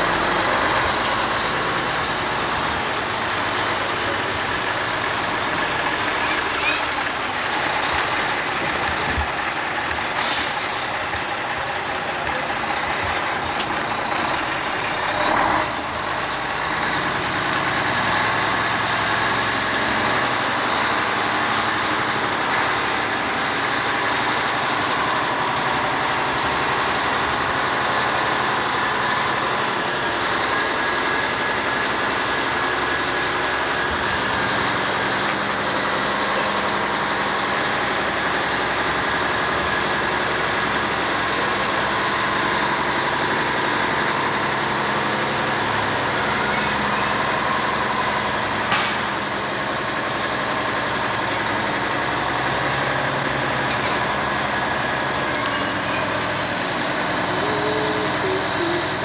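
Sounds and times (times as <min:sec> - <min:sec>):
diesel truck engine humming: 0:00.0 - 0:59.0
air brakes hissing: 0:10.1 - 0:10.9, 0:48.7 - 0:49.3.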